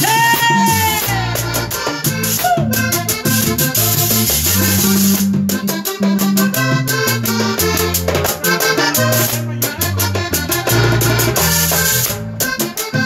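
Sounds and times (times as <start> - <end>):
caja drum rhythm: 0.0 - 13.0
metal tube percussion: 0.0 - 13.0
steady bass line: 0.0 - 13.0.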